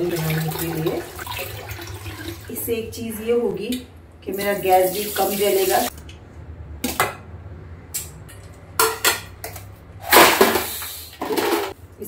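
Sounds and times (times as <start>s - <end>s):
kitchen clatter: 8.0s - 11.8s.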